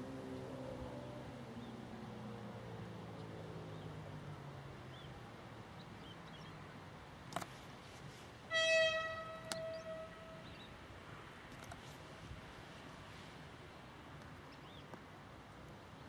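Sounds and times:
small birds chirping: 5.8s - 6.8s, 9.4s - 10.8s, 14.2s - 15.0s
train horn blast: 8.5s - 10.4s.

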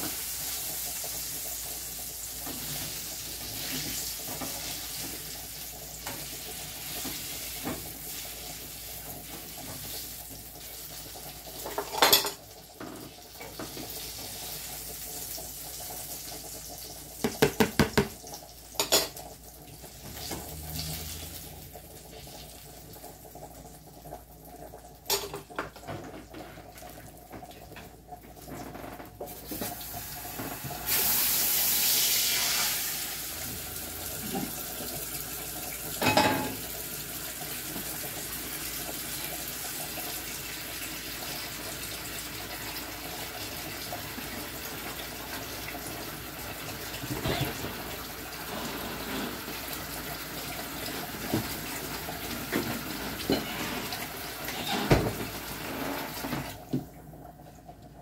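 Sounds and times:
tap water running: 0.0s - 58.0s
dishes clinking and clattering: 11.6s - 13.7s, 18.8s - 19.3s, 25.0s - 26.5s, 36.0s - 36.7s, 47.0s - 49.7s, 52.4s - 56.5s
knocks at sink: 17.2s - 18.2s.

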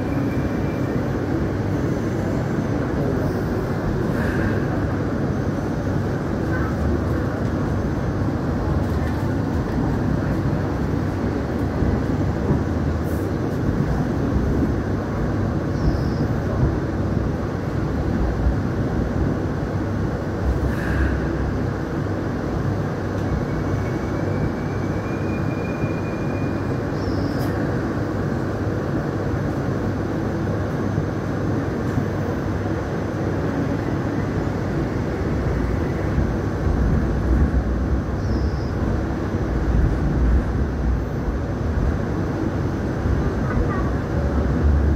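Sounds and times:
light rail train rumbling: 0.0s - 44.9s
faint high squeal: 24.2s - 27.5s.

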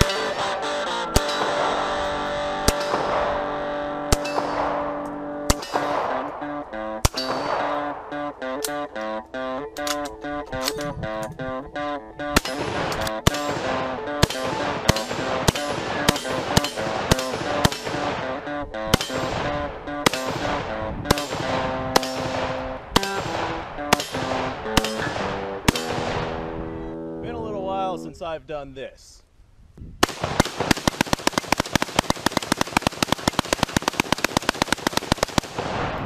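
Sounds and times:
guitar background music: 0.0s - 28.1s
rifle single shots: 2.6s - 8.3s, 12.3s - 26.5s, 30.0s - 36.0s.

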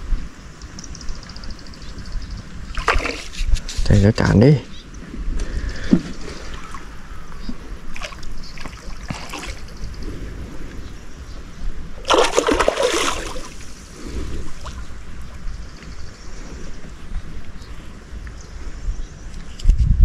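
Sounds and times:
fish splashing in water: 2.8s - 3.4s, 7.9s - 9.7s, 12.0s - 14.9s.

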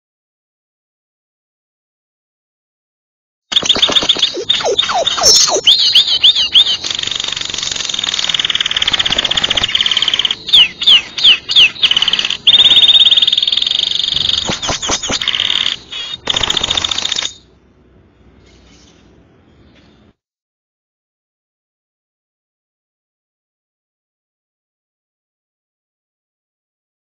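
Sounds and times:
canary singing rattling trills: 3.5s - 17.5s.

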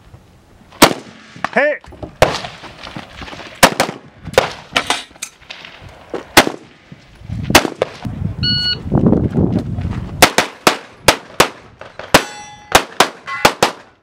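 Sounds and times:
rifle shots: 0.8s - 1.5s, 3.6s - 5.1s, 6.3s - 6.8s, 7.5s - 8.0s, 10.2s - 13.9s.

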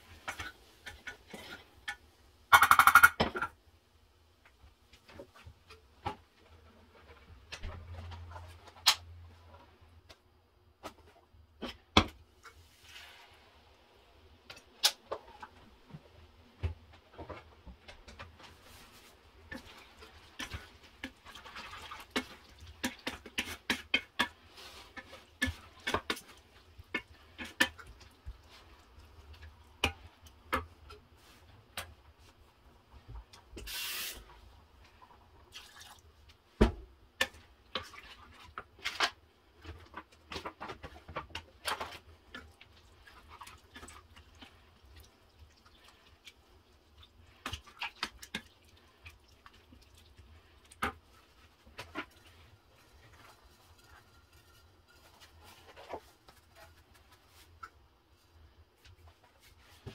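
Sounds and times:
wooden spoon scraping a saucepan: 18.4s - 29.4s, 50.7s - 57.7s
short hiss: 33.7s - 34.2s.

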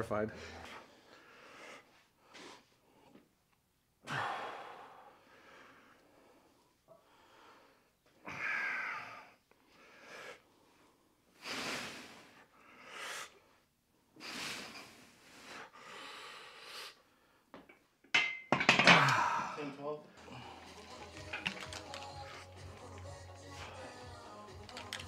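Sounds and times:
man breathing hard: 0.3s - 3.2s, 4.0s - 13.6s, 14.2s - 17.5s, 19.0s - 21.3s, 22.0s - 24.4s
sharp clicks: 24.5s - 25.0s.

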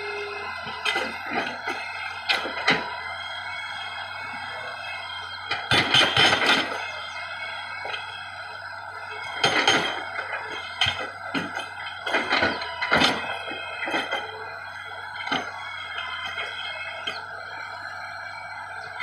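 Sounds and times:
steady machine hum: 0.0s - 19.0s
hydraulic breaker hammering boulders: 5.4s - 7.2s, 9.1s - 14.5s.

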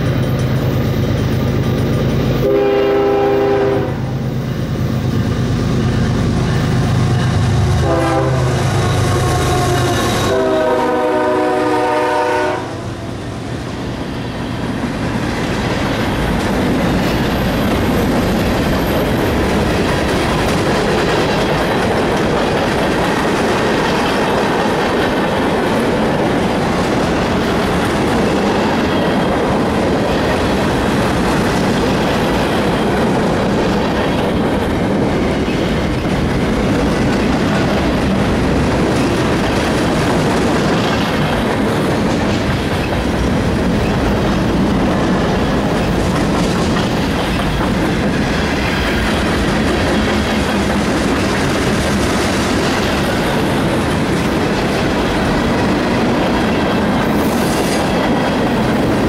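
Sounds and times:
train wheels rolling over rails: 0.0s - 59.0s
train horn: 2.4s - 4.1s, 7.6s - 13.2s.

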